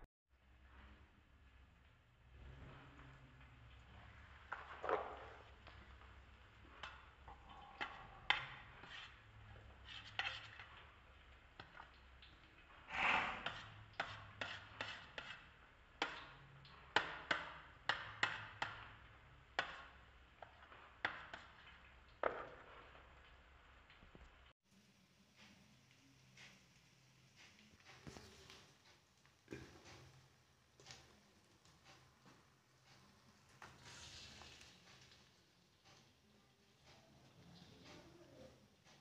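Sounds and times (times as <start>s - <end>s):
knife scraping steel bowl: 6.7s - 11.0s, 12.7s - 16.2s.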